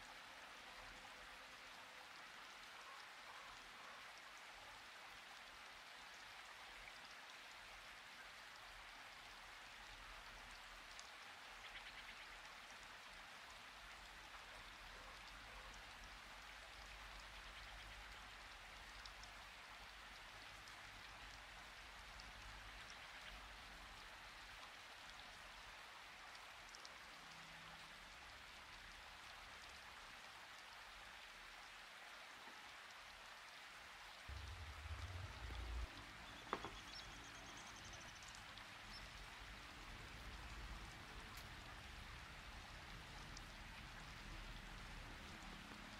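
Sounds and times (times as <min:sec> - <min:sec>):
faint steady hiss: 0:00.0 - 0:45.9
dull low bumps: 0:34.3 - 0:37.2.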